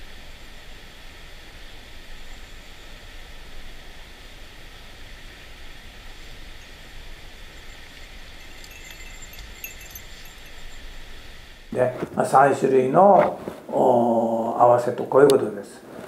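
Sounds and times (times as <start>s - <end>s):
stream water rushing: 5.1s - 10.7s.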